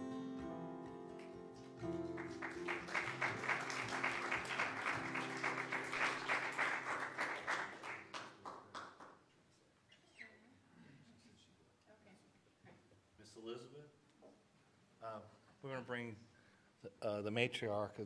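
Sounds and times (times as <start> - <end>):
keyboard and acoustic guitar chord: 0.0 - 6.6
audience applause: 1.1 - 9.1.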